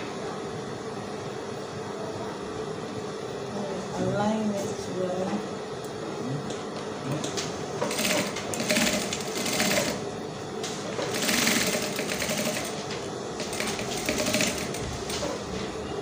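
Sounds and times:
sewing machine stitching: 7.8s - 10.0s, 11.0s - 15.4s.

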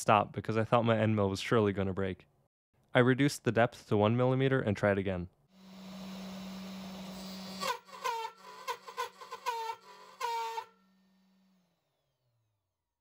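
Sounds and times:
metal cutting noise: 5.6s - 12.3s.

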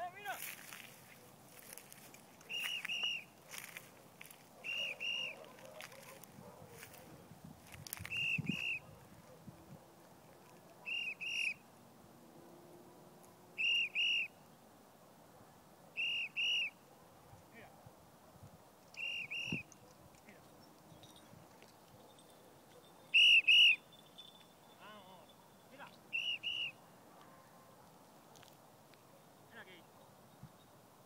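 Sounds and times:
whistle blown in short notes: 2.5s - 3.3s, 4.6s - 5.4s, 8.1s - 8.9s, 10.9s - 11.6s, 13.6s - 14.3s, 16.0s - 16.7s, 19.0s - 19.7s, 23.1s - 23.8s, 26.1s - 26.8s.

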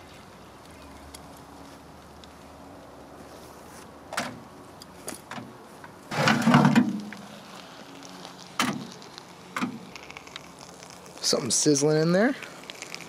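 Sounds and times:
scraping clunk: 6.1s - 7.2s
sharp knocks and clatters: 6.1s - 7.2s.

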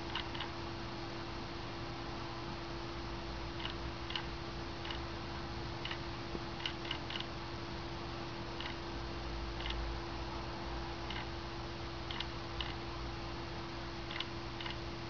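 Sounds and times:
faint steady hum: 0.0s - 15.0s
wall clock ticking: 3.6s - 4.2s, 12.1s - 12.8s, 14.1s - 14.8s.

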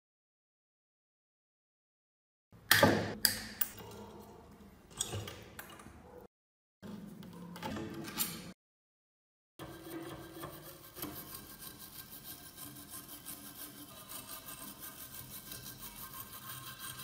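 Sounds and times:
wire brush scrubbing metal: 9.6s - 17.0s.

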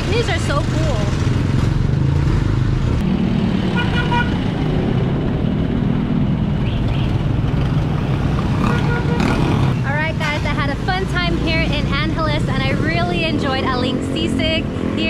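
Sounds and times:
traffic engine rumble: 0.0s - 15.0s
car horn toot: 3.8s - 4.3s, 8.6s - 9.4s.

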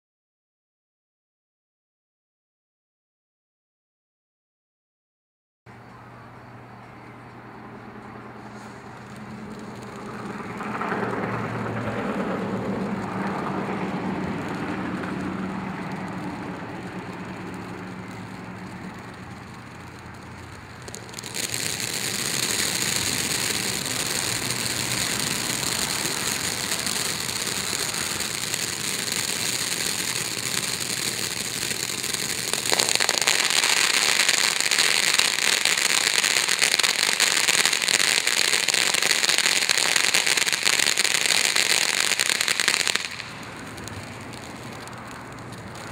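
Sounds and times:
firework crackling: 8.1s - 45.9s
firework fountain hissing: 8.1s - 45.9s.

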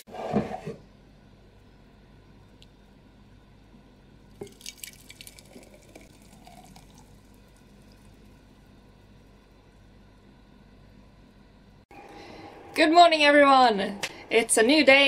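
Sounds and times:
liquid pouring softly: 4.3s - 8.8s
smoothie splatting and dripping: 4.4s - 7.8s.

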